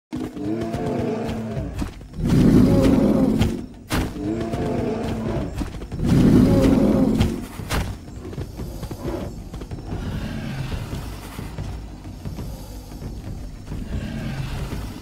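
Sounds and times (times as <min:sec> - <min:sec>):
dinosaur roar: 0:00.2 - 0:07.7, 0:08.6 - 0:13.0, 0:13.7 - 0:15.0
sharp thuds: 0:05.5 - 0:08.1.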